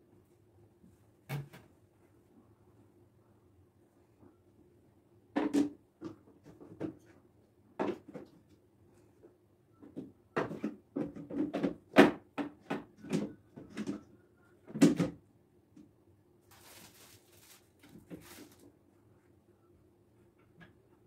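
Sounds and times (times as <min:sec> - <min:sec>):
soft rustling: 0:16.5 - 0:18.7.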